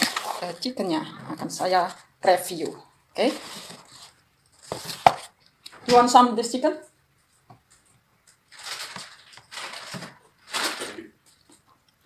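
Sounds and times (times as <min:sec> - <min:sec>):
crackly rustling of fried chicken: 0:07.6 - 0:11.8.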